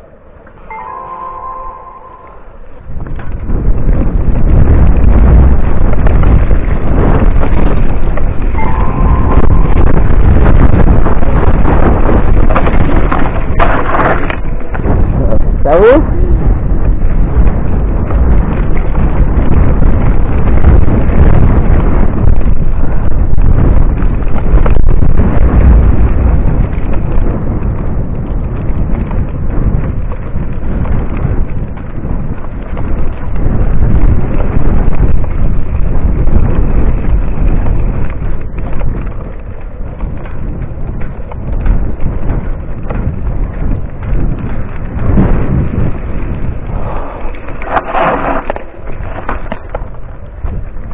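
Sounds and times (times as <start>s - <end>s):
wind buffeting microphone: 0.0s - 50.9s
bike tyres rumbling over dirt: 2.4s - 50.9s
bike knocking over bumps: 9.8s - 15.1s.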